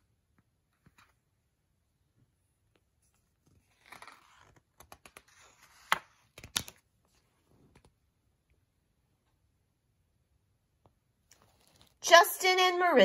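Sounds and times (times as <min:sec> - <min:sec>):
paper page crackling: 0:03.4 - 0:06.8.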